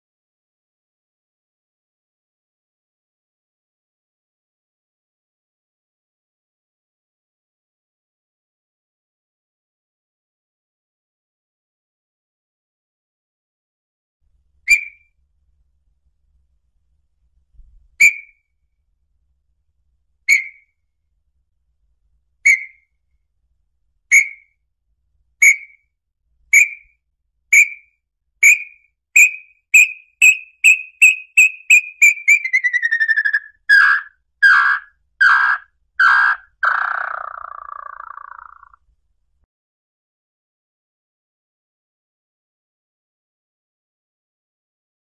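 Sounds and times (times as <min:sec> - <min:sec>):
tinamou whistled song: 0:14.7 - 0:15.1, 0:18.0 - 0:18.4, 0:20.3 - 0:20.7, 0:22.4 - 0:22.9, 0:24.1 - 0:24.6, 0:25.4 - 0:25.9, 0:26.5 - 0:38.6.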